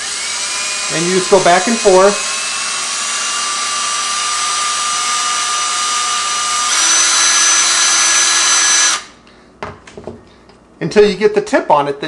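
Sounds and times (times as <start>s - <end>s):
cordless drill whining: 0.0s - 9.1s.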